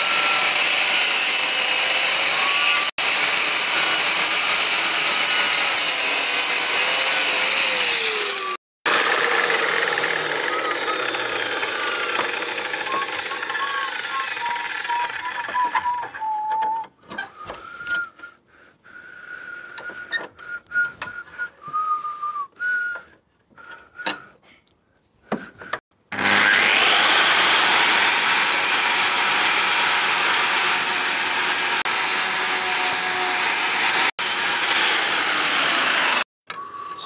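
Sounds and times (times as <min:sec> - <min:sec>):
angle grinder cutting metal: 0:00.0 - 0:16.3, 0:26.1 - 0:36.3
metal on metal squeaks: 0:12.8 - 0:18.2.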